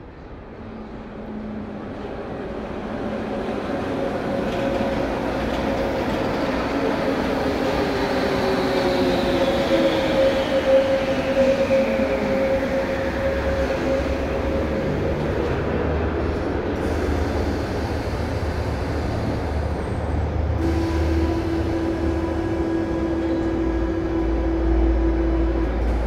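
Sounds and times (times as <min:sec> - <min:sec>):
metro train pulling in: 0:00.0 - 0:26.0
falling whine: 0:20.6 - 0:26.0.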